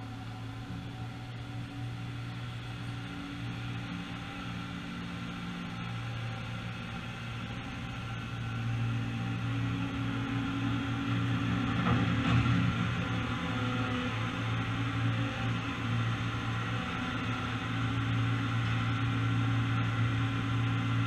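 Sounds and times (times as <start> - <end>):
diesel tractor engine running: 0.0 - 21.0.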